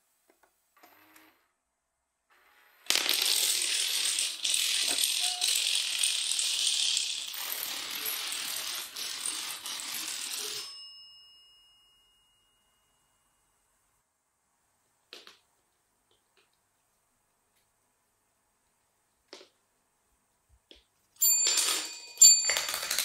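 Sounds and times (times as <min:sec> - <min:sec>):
dominoes toppling clatter: 0:02.8 - 0:10.7, 0:21.5 - 0:23.0
desk bell ringing: 0:10.5 - 0:13.5, 0:21.2 - 0:23.0.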